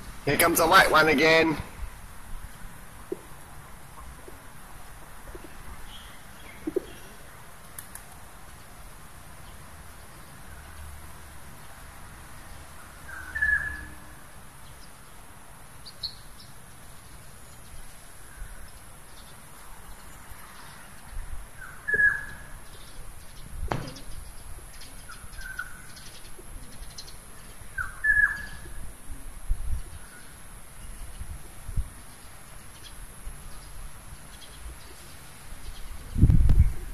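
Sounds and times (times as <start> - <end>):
sharp knock: 23.7 - 24.1.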